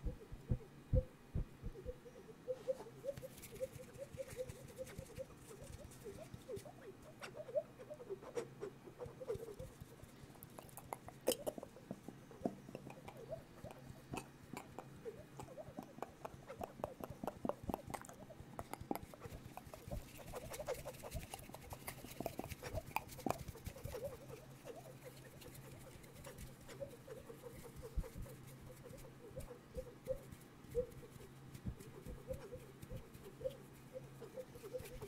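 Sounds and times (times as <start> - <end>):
lip and tongue clicks: 8.3 - 30.2.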